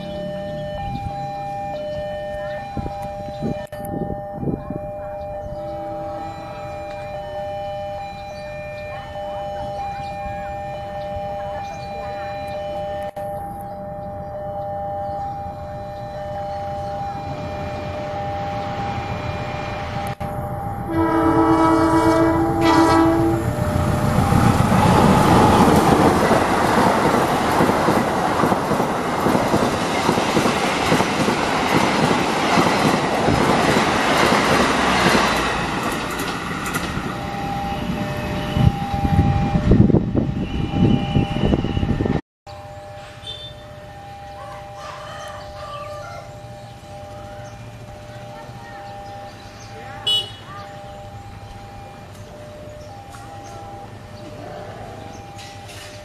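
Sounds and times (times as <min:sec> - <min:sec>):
two-tone crossing warning signal: 0:00.0 - 0:56.0
train horn blast: 0:05.7 - 0:06.8, 0:17.1 - 0:26.1, 0:43.1 - 0:43.7, 0:50.0 - 0:50.5
train wheels clacking on rails: 0:24.3 - 0:37.2.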